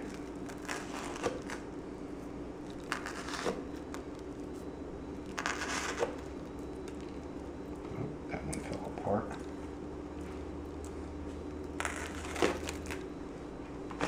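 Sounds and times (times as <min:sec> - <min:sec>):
toast crackling and crunching: 0:00.0 - 0:01.8, 0:02.6 - 0:07.8, 0:10.6 - 0:13.1
steady low hum: 0:00.0 - 0:14.0.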